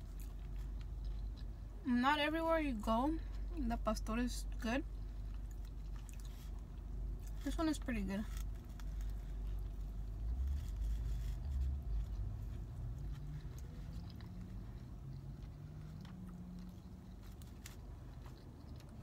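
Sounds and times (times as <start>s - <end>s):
person chewing food: 0.0s - 1.8s, 4.9s - 7.4s, 8.3s - 19.0s.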